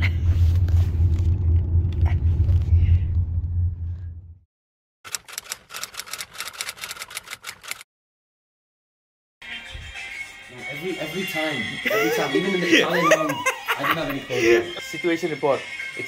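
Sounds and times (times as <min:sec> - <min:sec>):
loud low rumble: 0:00.0 - 0:04.4
typing clicks: 0:05.1 - 0:07.8.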